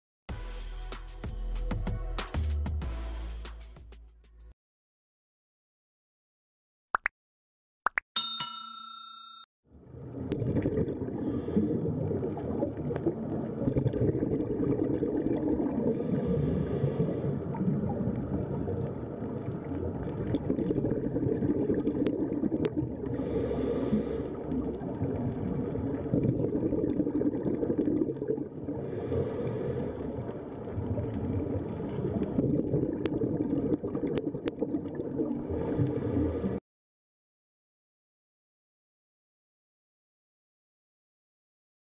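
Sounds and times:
low underwater rumble: 9.8s - 36.6s
scuba bubbles hissing: 10.4s - 36.6s.

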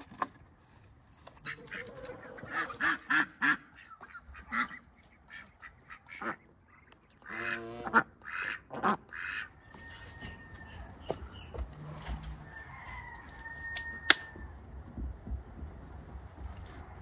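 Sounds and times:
ducks quacking: 1.4s - 9.6s.

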